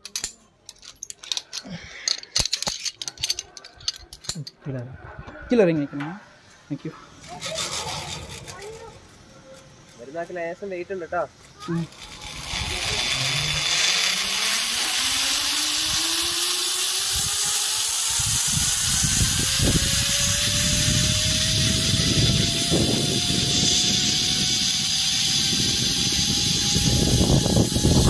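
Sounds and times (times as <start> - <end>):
zipline pulleys whining: 7.1 - 10.0, 11.4 - 28.0
wind buffeting microphone: 17.0 - 28.0.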